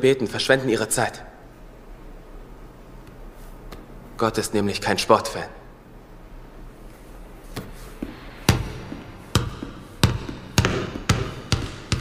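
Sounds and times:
basketball bouncing on hardwood floor: 0:07.6 - 0:12.0.

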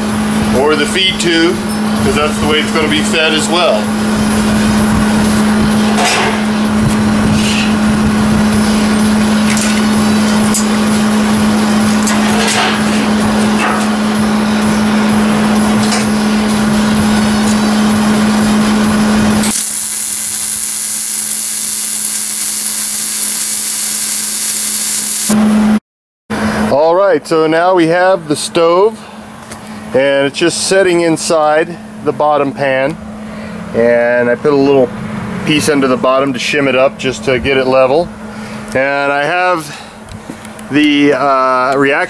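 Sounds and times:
steady hum: 0:00.1 - 0:25.8
welder arc crackling hiss: 0:19.4 - 0:25.4.

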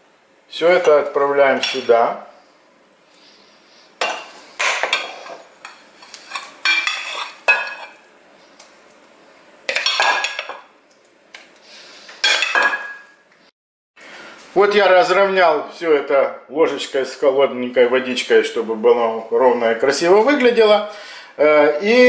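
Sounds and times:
metal spoon scraping glass bowl: 0:06.3 - 0:08.0.

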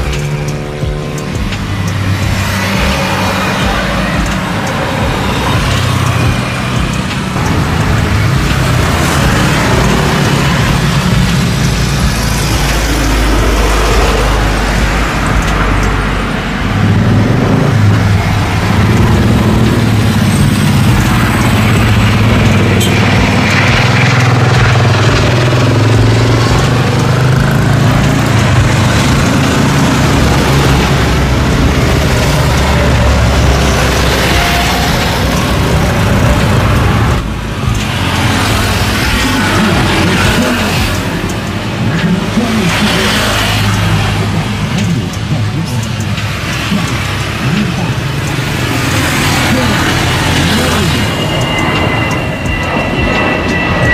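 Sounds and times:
jet engines rumbling: 0:00.0 - 0:53.9.

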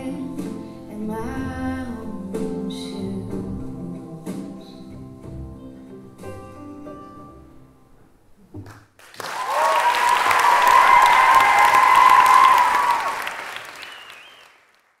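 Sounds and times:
audience applauding and cheering: 0:09.0 - 0:15.0.

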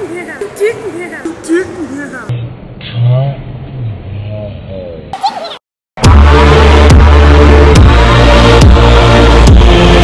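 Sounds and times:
boys laughing: 0:05.2 - 0:05.6.

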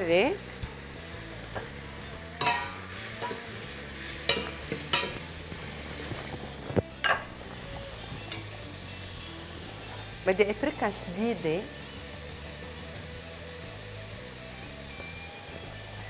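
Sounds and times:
metallic clinks of pot and utensils: 0:02.4 - 0:03.4, 0:04.3 - 0:05.2.

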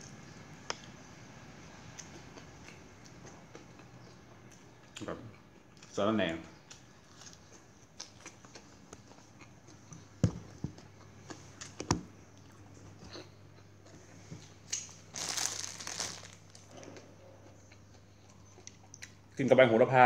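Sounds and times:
plastic bag crinkling: 0:14.9 - 0:16.7.

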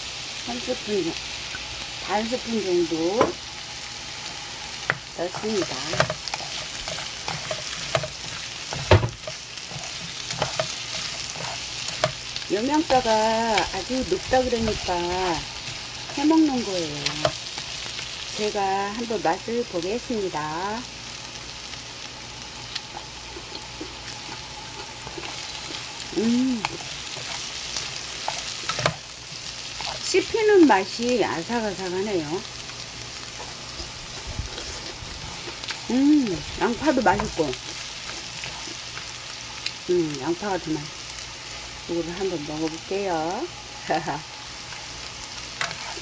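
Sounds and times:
vegetables sizzling in a pan: 0:00.0 - 0:46.0
utensil tapping and scraping pan: 0:04.8 - 0:12.2
knock against pan: 0:08.8 - 0:09.2
person humming: 0:26.1 - 0:26.8.

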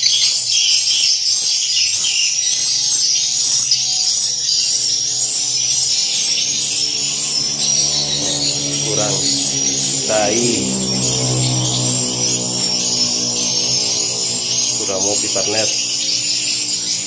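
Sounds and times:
swiftlets twittering and chirping: 0:04.0 - 0:17.0
low steady hum: 0:05.4 - 0:17.0.

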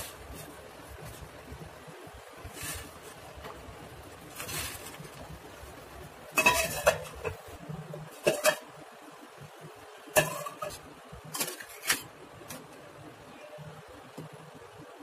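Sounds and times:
metal spoon clinking on saucepan: 0:06.4 - 0:07.4.

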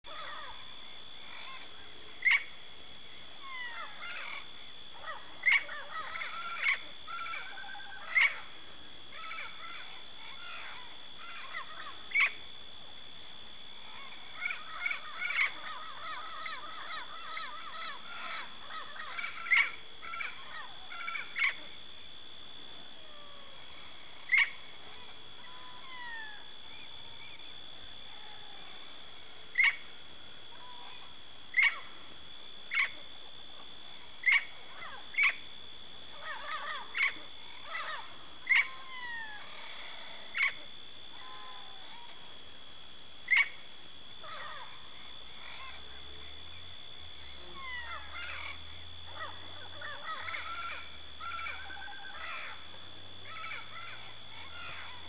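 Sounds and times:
parrots chattering and warbling: 0:09.2 - 0:12.3, 0:45.4 - 0:45.8, 0:47.6 - 0:48.6, 0:53.3 - 0:55.0
parrots calling: 0:47.6 - 0:48.5.

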